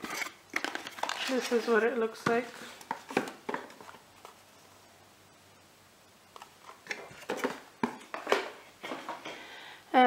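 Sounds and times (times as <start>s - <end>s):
cardboard packaging rustling: 0.0s - 4.5s, 6.4s - 8.6s.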